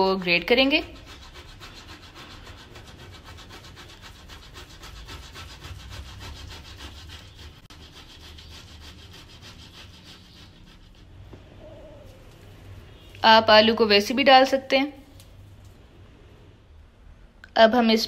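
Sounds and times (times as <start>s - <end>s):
potato grating on metal grater: 0.0s - 11.2s.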